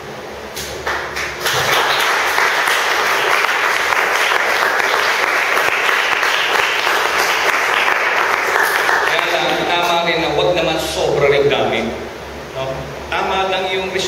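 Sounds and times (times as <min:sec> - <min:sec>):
crowd applauding: 0:00.8 - 0:09.8.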